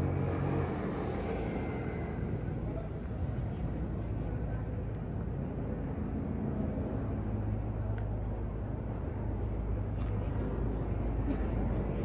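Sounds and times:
vehicle engine humming: 0.0 - 4.5
city street noise: 0.0 - 12.0.

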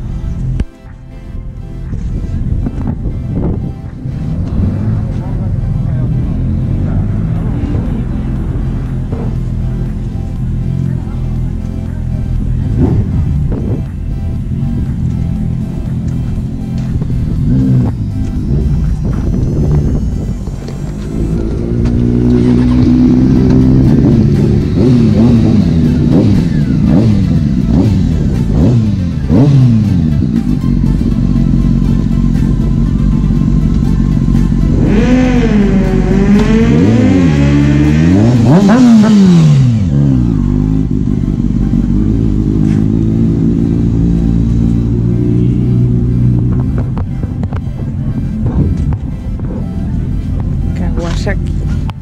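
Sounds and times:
motorcycle engine revving: 2.6 - 52.0
motorcycle passing by: 16.7 - 30.6, 34.7 - 47.0.

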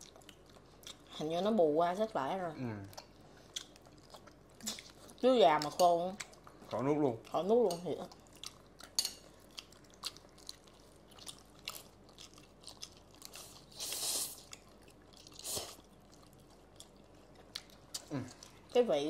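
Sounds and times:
people chewing food: 0.0 - 19.0.

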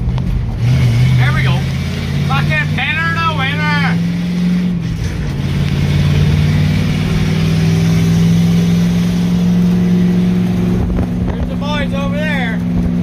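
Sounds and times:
truck engine at full throttle: 0.0 - 13.0.

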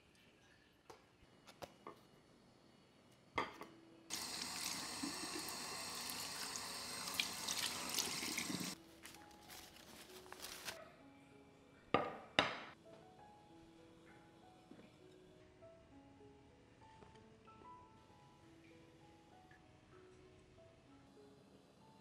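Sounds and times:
tap water splashing in a sink: 4.1 - 8.8.

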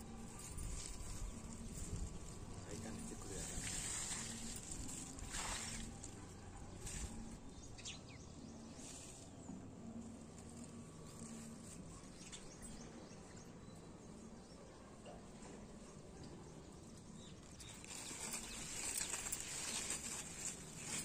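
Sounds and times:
faint outdoor background noise: 0.0 - 21.0
soft rustles and clicks: 17.2 - 21.0.

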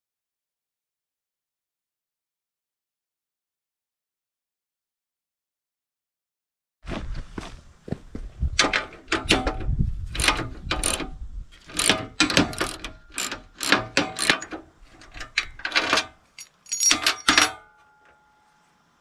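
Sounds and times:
ratchet clicking: 10.1 - 14.6.

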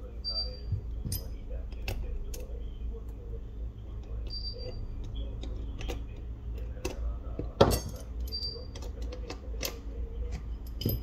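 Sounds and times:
steady low hum: 0.0 - 11.0
small tools clicking and tapping: 4.0 - 11.0.

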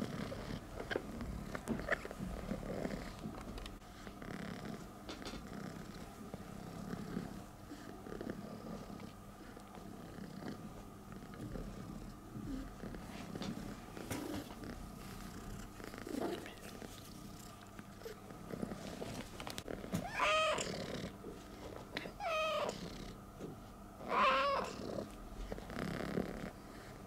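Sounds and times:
cat purring: 0.0 - 27.0
cat meowing: 20.0 - 20.7, 22.2 - 22.8, 24.0 - 24.8.

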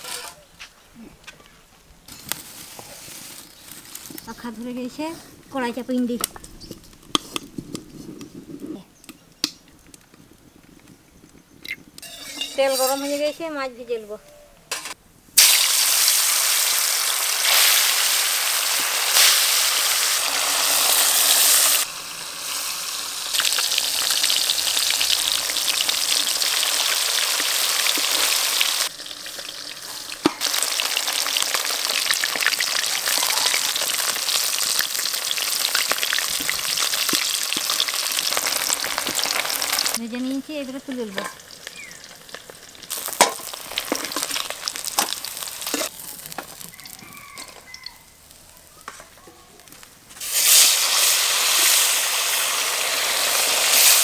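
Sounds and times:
fish deep-frying in oil: 15.4 - 48.0, 50.2 - 54.0.

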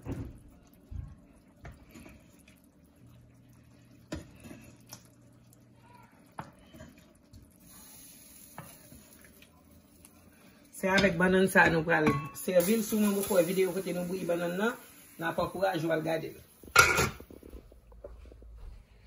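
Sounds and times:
soft hiss: 12.6 - 18.9.

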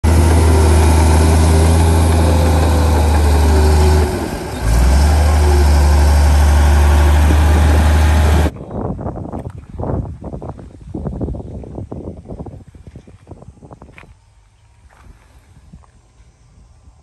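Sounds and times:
bulldozer diesel engine running: 0.0 - 8.6.

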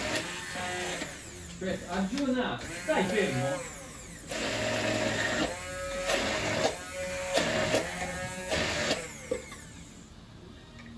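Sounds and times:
immersion blender whirring: 0.0 - 2.0, 2.6 - 10.2.

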